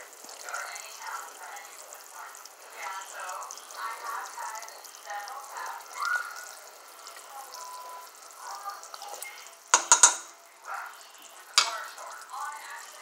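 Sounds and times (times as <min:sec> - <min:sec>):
pot simmering with bubbling hiss: 0:00.0 - 0:13.0
sharp knocks: 0:09.8 - 0:10.3.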